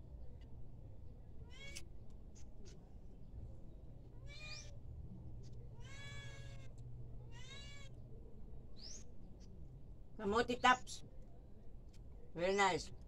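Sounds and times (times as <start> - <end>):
cat meowing: 1.5 - 1.8, 4.2 - 4.7, 5.8 - 6.7, 7.3 - 8.0.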